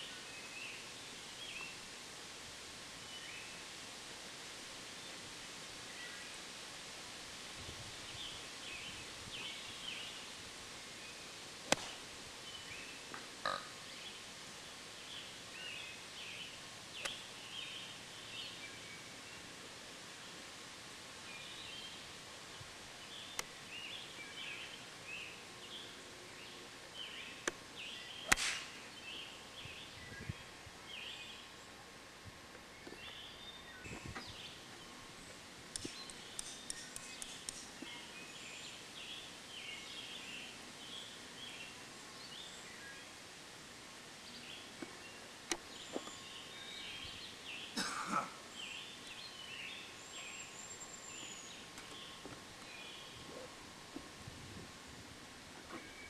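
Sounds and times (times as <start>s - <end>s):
golf club striking ball: 11.7s - 12.0s, 28.3s - 28.8s
birds chirping: 32.6s - 43.2s, 44.2s - 53.6s.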